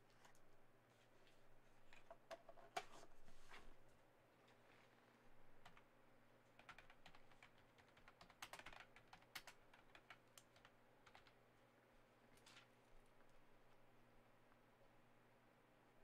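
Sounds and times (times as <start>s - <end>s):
typing on computer keyboard: 6.5s - 11.4s
low steady hum: 9.2s - 16.0s.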